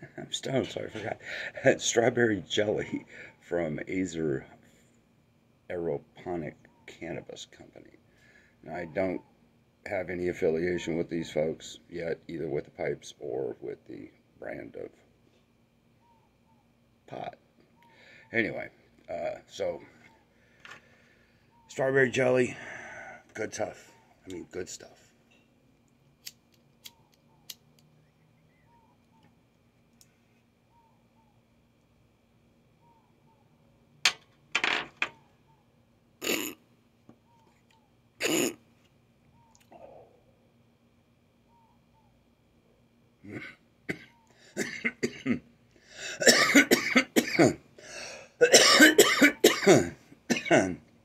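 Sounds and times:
man coughing: 43.2 - 45.4, 46.1 - 47.6, 48.4 - 50.8.

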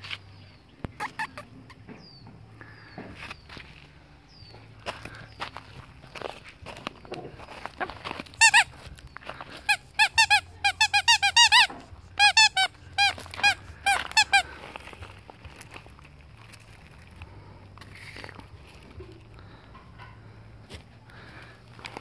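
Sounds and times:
squeaky toy squeaking: 1.0 - 1.8, 8.3 - 8.9, 9.6 - 14.5.

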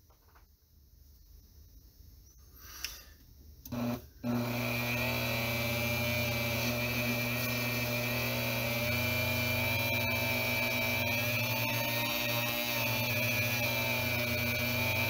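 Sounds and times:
rotary tool whining: 3.7 - 15.0.

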